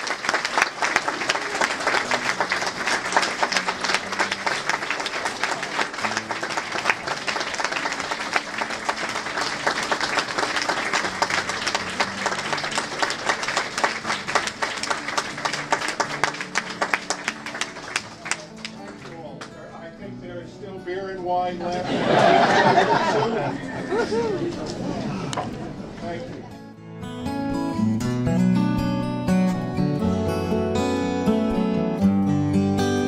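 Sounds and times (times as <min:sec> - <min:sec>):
people clapping: 0:00.0 - 0:19.7.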